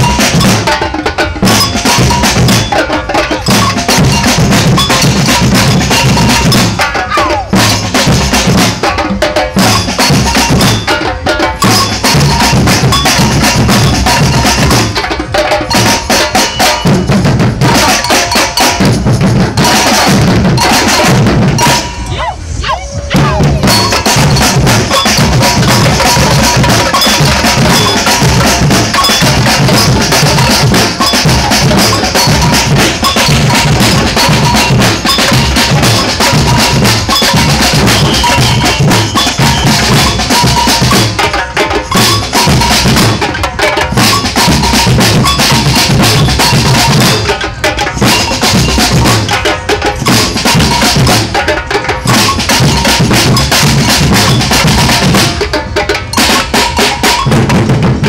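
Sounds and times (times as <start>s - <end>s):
snare drum: 0.0s - 22.1s, 23.1s - 58.0s
samba drum band playing: 0.0s - 58.0s
deep bass drums beating: 23.0s - 41.2s, 52.0s - 55.4s.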